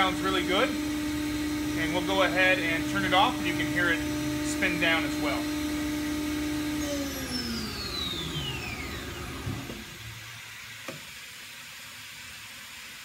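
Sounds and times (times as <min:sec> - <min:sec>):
router spindle spinning down: 0:00.0 - 0:11.0.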